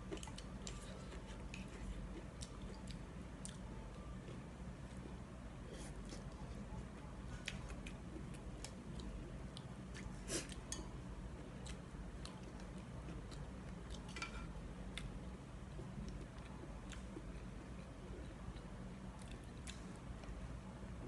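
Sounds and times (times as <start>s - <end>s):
person chewing: 0.0s - 6.7s, 7.3s - 10.8s, 11.4s - 14.2s, 15.9s - 20.4s
low steady hum: 0.0s - 21.0s.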